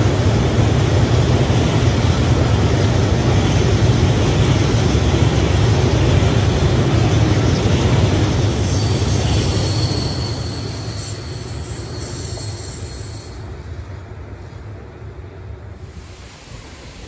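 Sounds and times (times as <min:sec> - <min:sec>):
train wheels rumbling on rails: 0:00.0 - 0:17.0
thin wheel squeal: 0:08.7 - 0:13.4.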